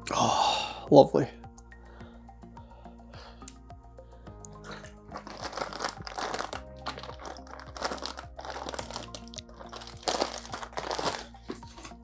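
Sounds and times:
background music with held notes: 0:00.0 - 0:12.0
plastic bag crinkling: 0:04.7 - 0:12.0.

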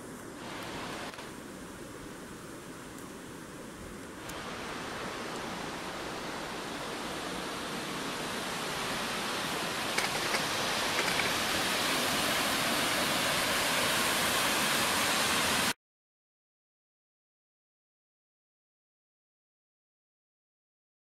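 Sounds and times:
water rushing over boulders: 0:00.0 - 0:15.8.

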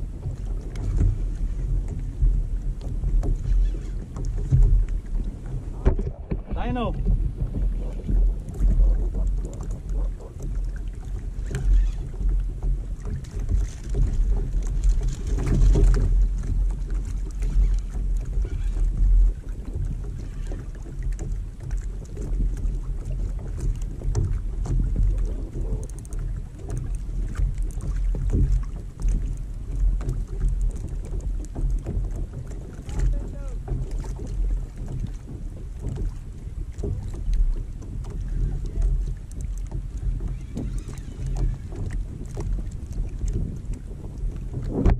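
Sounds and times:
water slapping against kayak hull: 0:00.0 - 0:44.9
wind rumbling on microphone: 0:00.0 - 0:44.9.

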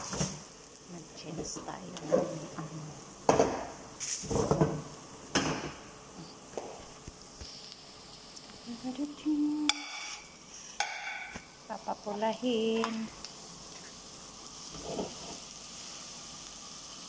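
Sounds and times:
onions sizzling in a frying pan: 0:00.0 - 0:17.0
pots and utensils clattering: 0:03.3 - 0:05.8, 0:14.7 - 0:15.4.

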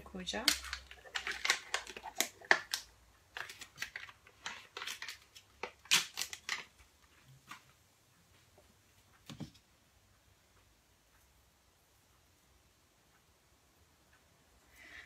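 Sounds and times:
plastic packaging crinkling: 0:00.4 - 0:06.8.

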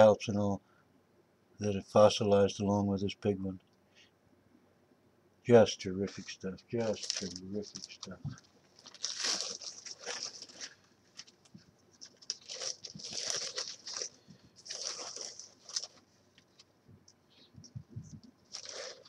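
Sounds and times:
plastic bag crinkling: 0:06.0 - 0:16.6, 0:18.3 - 0:19.0.

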